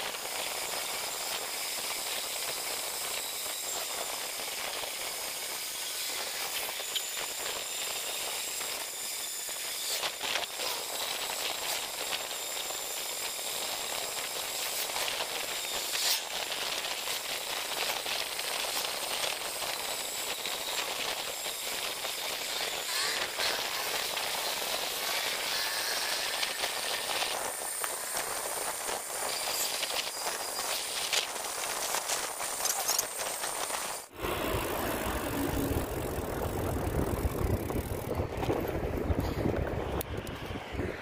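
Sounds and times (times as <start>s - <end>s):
bicycle tyres on paved road: 0.0s - 41.0s
bike clicking and rattling: 14.2s - 40.8s
wind rushing: 34.1s - 41.0s.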